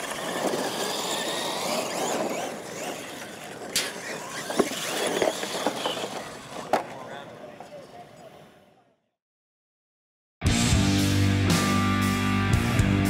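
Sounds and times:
toy truck motors whining: 0:00.0 - 0:07.3
tires scrabbling on dirt: 0:00.0 - 0:07.7.

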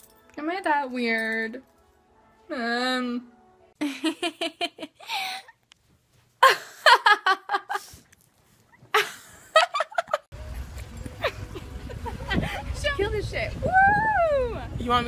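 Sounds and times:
young woman laughing: 0:03.8 - 0:05.6, 0:06.4 - 0:07.9, 0:08.9 - 0:10.3, 0:11.1 - 0:12.8.

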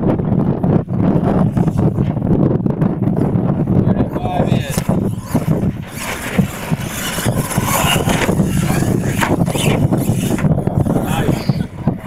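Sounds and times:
wind buffeting microphone: 0:00.0 - 0:12.0
toy truck motors droning: 0:03.2 - 0:12.0.

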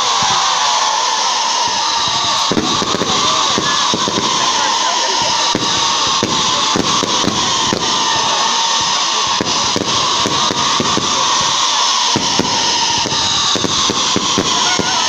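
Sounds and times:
fireworks bangs and cracks: 0:00.0 - 0:15.0
hiss of rising rockets: 0:00.0 - 0:15.0.

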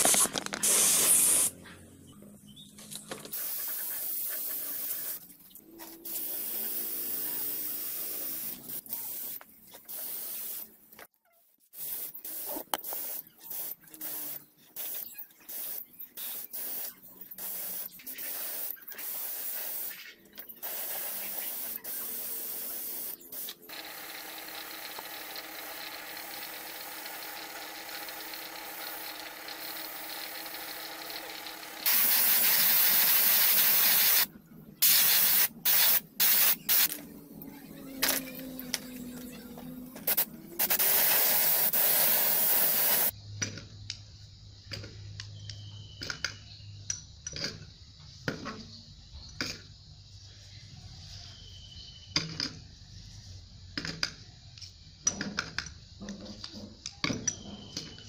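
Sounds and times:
paint spray gun hissing: 0:00.0 - 0:01.5, 0:03.3 - 0:05.2, 0:06.0 - 0:10.7, 0:11.8 - 0:37.0, 0:38.0 - 0:43.1.

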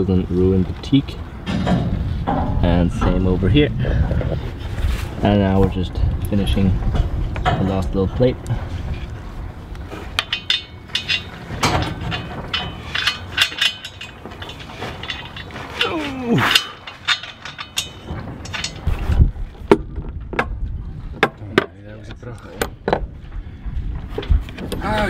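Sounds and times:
metal tools and bolts clinking: 0:10.1 - 0:19.2.

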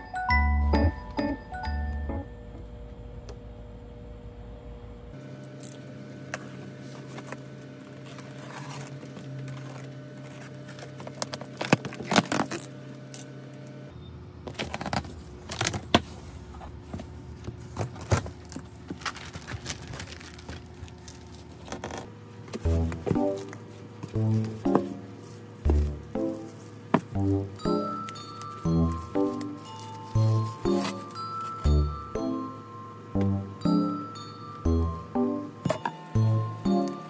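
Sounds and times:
cardboard and styrofoam handled: 0:28.0 - 0:31.7.

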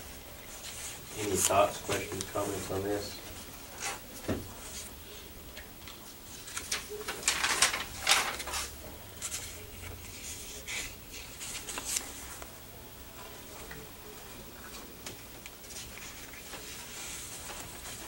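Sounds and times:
paper rustling: 0:00.4 - 0:12.5, 0:14.2 - 0:18.0.

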